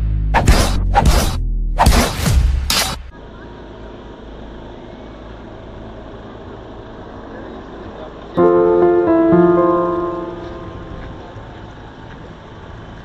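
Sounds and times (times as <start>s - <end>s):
street traffic: 2.7s - 13.0s
piano music: 8.4s - 11.5s.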